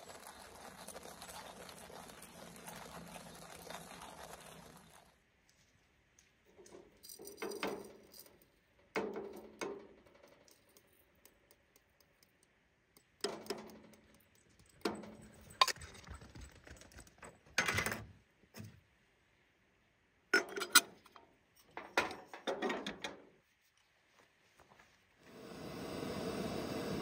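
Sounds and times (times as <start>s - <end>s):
light metal taps and clinks: 6.5s - 17.3s.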